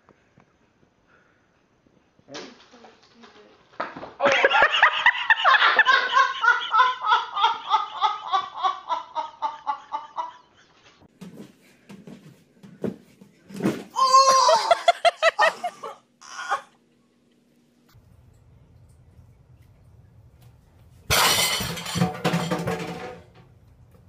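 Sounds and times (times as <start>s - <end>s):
hearty rhythmic laughter: 4.2s - 11.1s, 14.6s - 17.5s.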